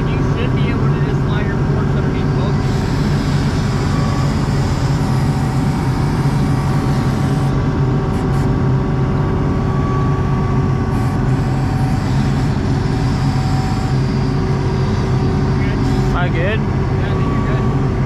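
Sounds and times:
diesel engine running: 0.0s - 18.0s.

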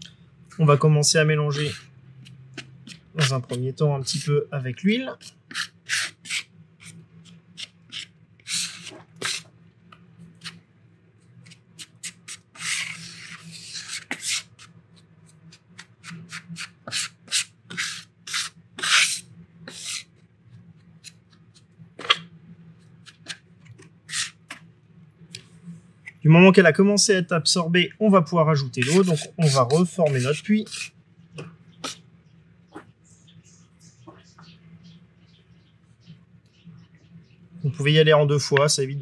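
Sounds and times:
metal scraper scraping on marble: 1.5s - 4.4s, 5.0s - 9.4s, 11.4s - 14.7s, 15.5s - 20.1s, 24.1s - 24.6s, 28.6s - 30.9s.

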